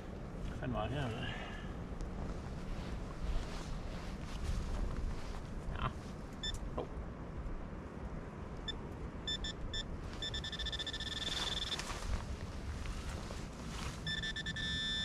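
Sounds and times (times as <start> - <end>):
wind rumble on microphone: 0.0 - 15.0
metal detector probe beeping: 8.7 - 11.9, 14.0 - 15.0.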